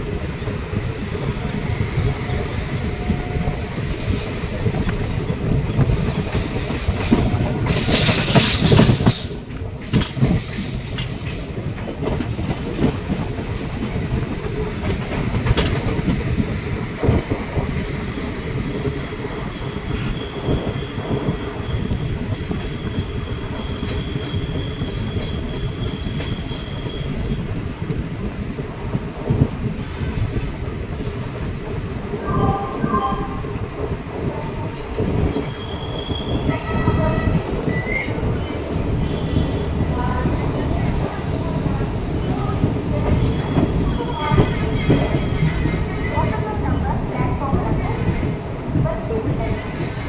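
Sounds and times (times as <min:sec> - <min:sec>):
train rumble: 0:00.0 - 0:50.0
wheels clattering over rail joints: 0:04.8 - 0:12.7.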